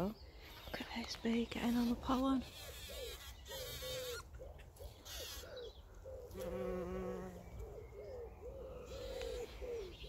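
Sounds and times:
bird calls: 0:00.0 - 0:10.0
bee buzzing: 0:06.3 - 0:07.7, 0:08.8 - 0:09.6.

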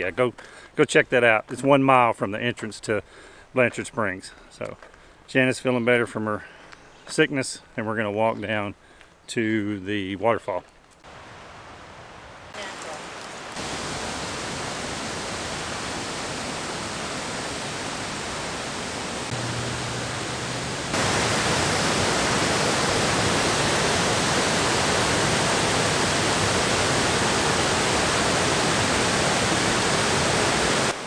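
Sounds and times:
creek and waterfall rushing: 0:11.0 - 0:31.0.

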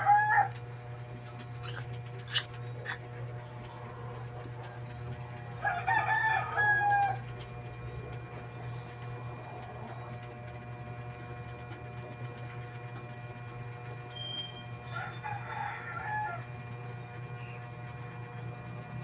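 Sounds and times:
rooster crowing: 0:00.0 - 0:00.6, 0:05.5 - 0:07.3, 0:14.8 - 0:16.6
steady low hum: 0:00.0 - 0:19.0.

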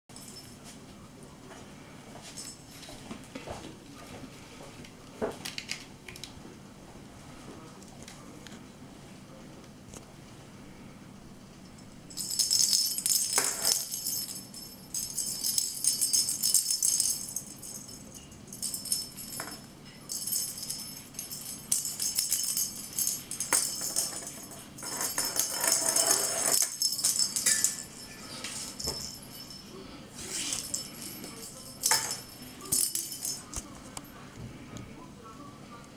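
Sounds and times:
bell in toy ball jingling: 0:12.1 - 0:29.7, 0:30.4 - 0:33.6.

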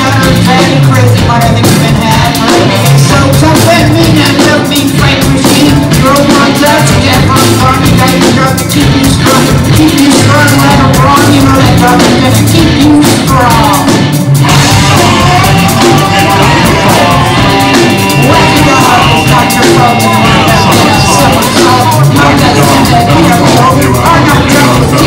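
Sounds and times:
drum kit: 0:00.0 - 0:25.0
electric guitars: 0:00.0 - 0:25.0
saxophone: 0:11.8 - 0:25.0.

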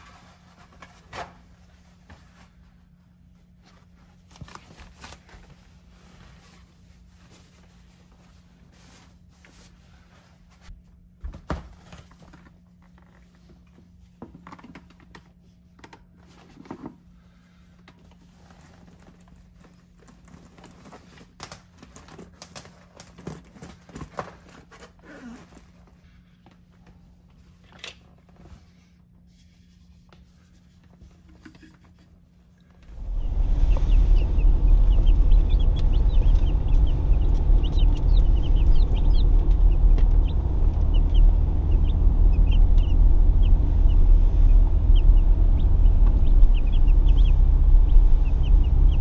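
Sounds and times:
paper towels rustling: 0:00.0 - 0:14.0
faint steady hum: 0:00.0 - 0:49.0
plastic items knocking and clicking: 0:20.0 - 0:24.6.

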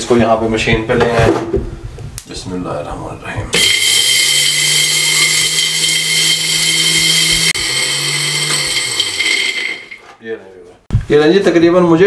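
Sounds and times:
mixer grinder whining: 0:03.6 - 0:10.1.

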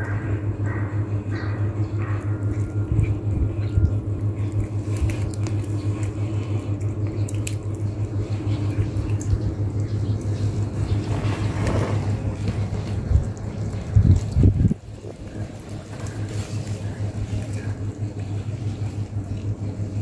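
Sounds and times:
low hum: 0:00.0 - 0:20.0
cats crunching bones: 0:02.1 - 0:09.2.

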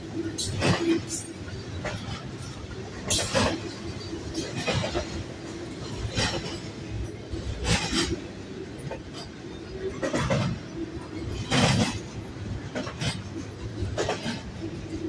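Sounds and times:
freight train wheels rumbling: 0:00.0 - 0:15.0.

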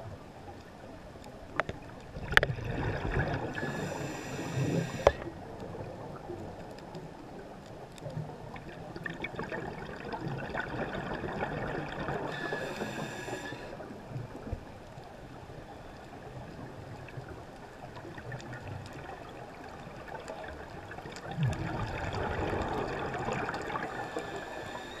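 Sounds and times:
bubbling of exhaled air: 0:02.2 - 0:05.4, 0:09.0 - 0:14.0, 0:21.2 - 0:25.0
regulator breathing underwater: 0:03.4 - 0:05.4, 0:12.1 - 0:14.0, 0:23.5 - 0:25.0.

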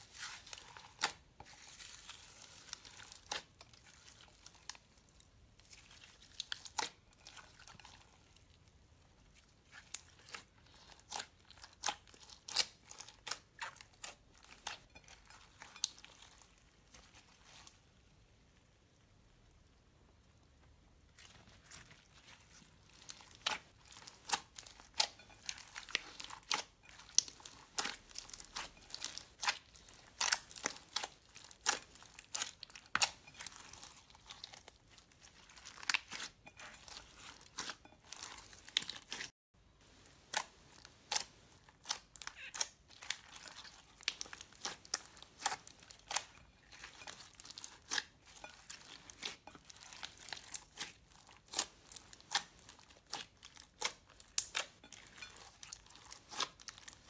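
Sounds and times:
slime crackling and popping: 0:09.7 - 0:17.7, 0:22.9 - 0:39.3, 0:40.1 - 0:57.0.

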